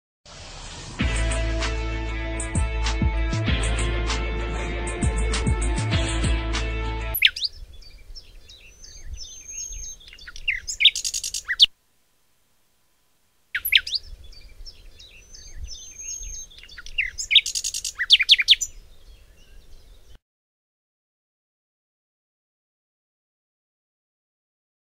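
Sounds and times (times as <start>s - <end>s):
small birds chirping: 7.1s - 11.7s, 13.5s - 20.2s.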